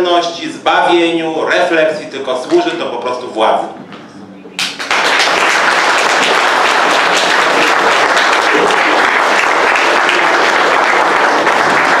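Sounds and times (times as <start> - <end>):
audience applause: 4.6 - 12.0.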